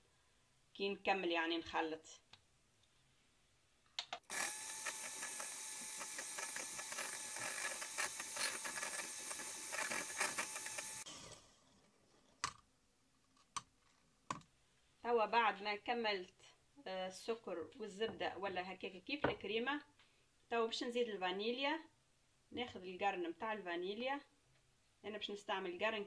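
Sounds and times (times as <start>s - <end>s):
mixer clicks: 4.0s - 11.1s
electric hand mixer whine: 4.3s - 11.5s.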